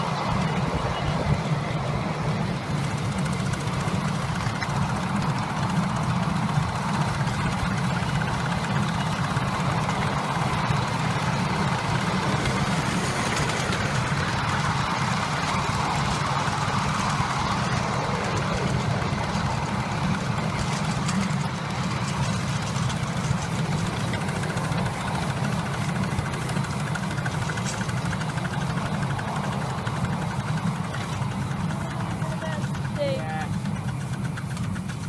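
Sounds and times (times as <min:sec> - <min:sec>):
miniature steam train running: 0:00.0 - 0:35.0.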